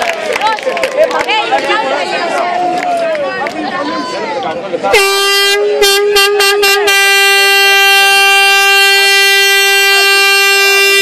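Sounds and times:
air horn blasts: 4.9s - 11.0s.

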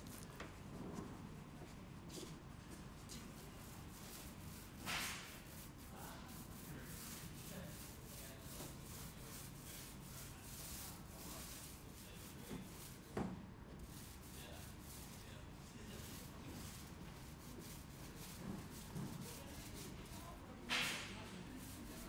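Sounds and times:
paint roller rubbing on wall: 3.6s - 13.2s, 13.8s - 22.0s.

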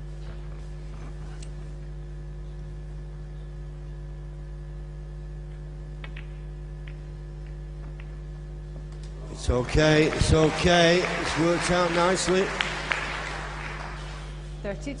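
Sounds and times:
electrical mains hum: 0.0s - 15.0s
snooker balls clicking: 6.0s - 8.2s.

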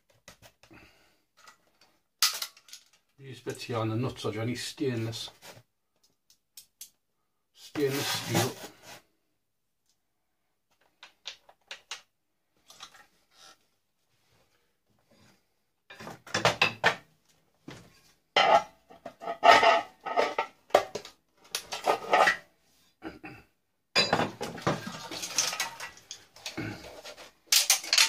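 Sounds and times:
metal parts and tools clattering: 2.2s - 3.1s, 18.4s - 22.4s, 24.0s - 28.0s.

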